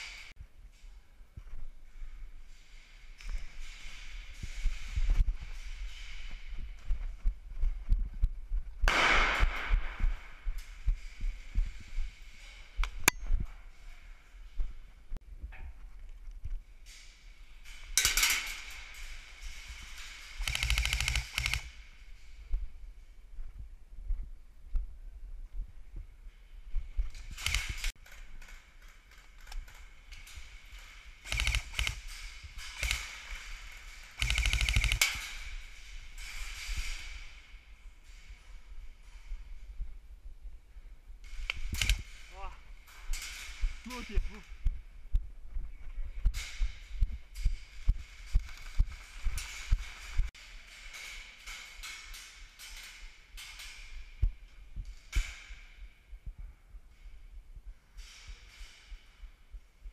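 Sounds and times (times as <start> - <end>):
single gunshots: 8.8 - 10.1
automatic gunfire: 20.4 - 21.7, 34.2 - 35.2
sharp clicks: 20.4 - 21.7, 27.3 - 27.9, 31.2 - 32.1, 34.2 - 35.2, 41.4 - 42.1.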